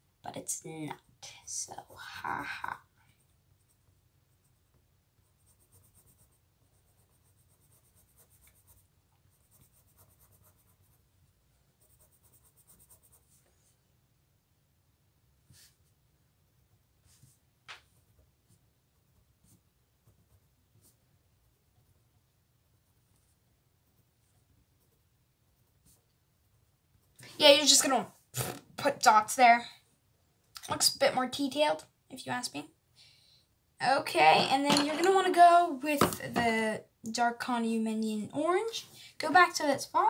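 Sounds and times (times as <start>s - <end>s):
pencil scratching on paper: 1.8s - 11.1s, 11.7s - 13.8s, 17.0s - 28.0s.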